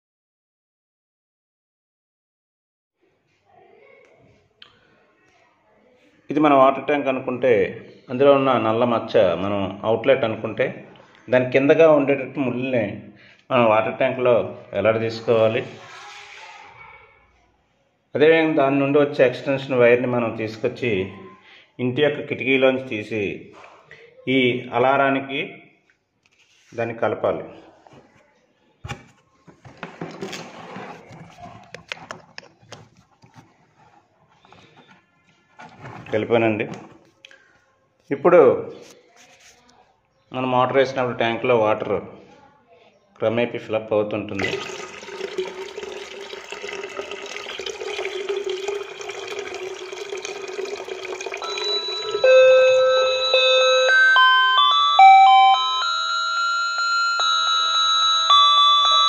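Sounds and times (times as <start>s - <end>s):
rustling and scraping: 15.6s - 16.8s, 26.2s - 26.8s, 28.9s - 37.2s, 38.8s - 39.8s
water pouring into a bucket: 44.4s - 52.1s
electronic doorbell-style alarm melody: 51.4s - 59.0s.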